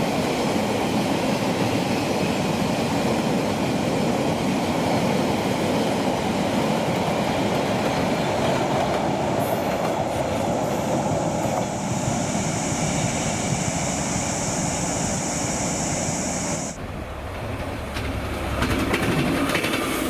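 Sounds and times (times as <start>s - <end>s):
freight train wheels rumbling: 0.0s - 20.0s
steady high-pitched tone: 10.8s - 16.8s.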